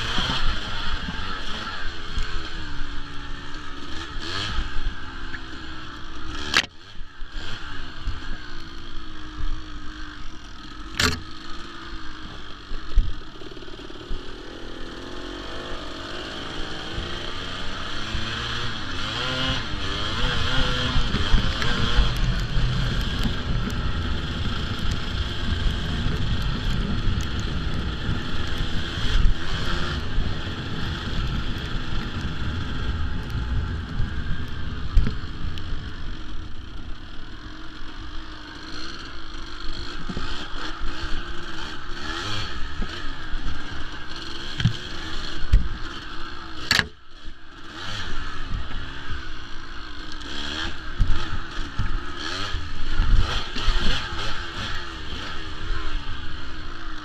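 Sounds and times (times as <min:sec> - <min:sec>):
motorcycle engine revving: 0:00.0 - 0:57.0
wind rumbling on microphone: 0:15.4 - 0:37.4.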